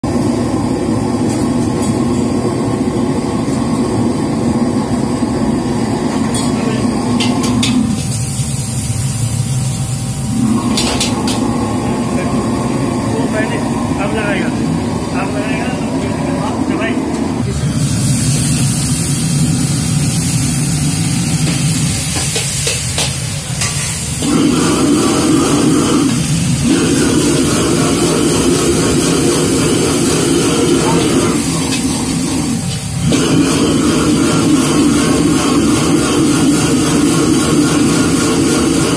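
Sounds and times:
gas burner rushing: 0:00.0 - 0:38.9
kitchen extraction fan: 0:00.0 - 0:38.9
food sizzling in wok: 0:07.3 - 0:11.7, 0:17.6 - 0:38.9.

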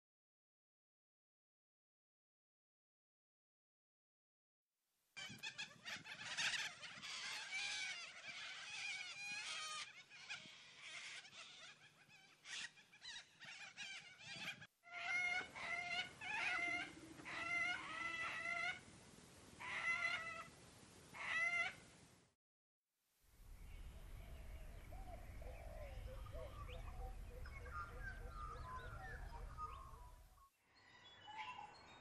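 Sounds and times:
corellas calling: 0:05.2 - 0:18.9, 0:19.6 - 0:21.9, 0:23.5 - 0:30.5.

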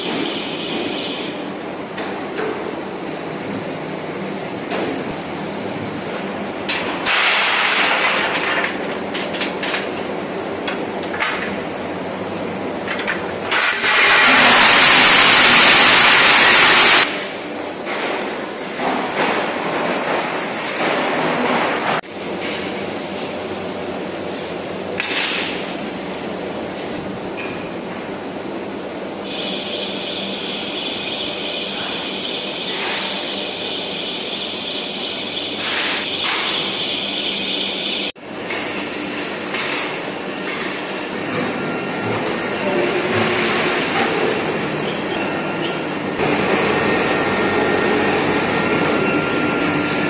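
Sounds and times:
industrial machinery noise: 0:00.0 - 0:50.0.

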